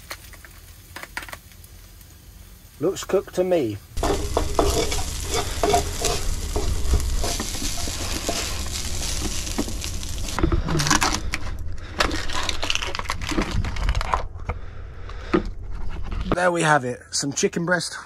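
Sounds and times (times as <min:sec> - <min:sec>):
rice sizzling in a frying pan: 0:00.0 - 0:11.0
wooden spoon stirring and scraping: 0:04.0 - 0:10.6
spatula scraping a foil tray: 0:04.0 - 0:11.2.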